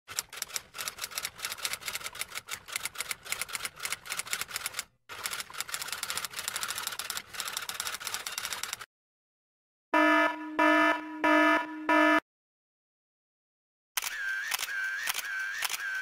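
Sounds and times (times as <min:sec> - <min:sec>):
typewriter typing: 0:00.1 - 0:08.9.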